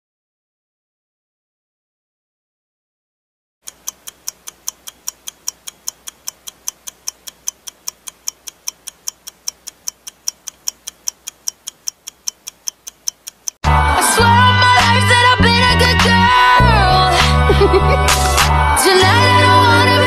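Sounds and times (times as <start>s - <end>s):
ticking clock: 3.6s - 13.6s.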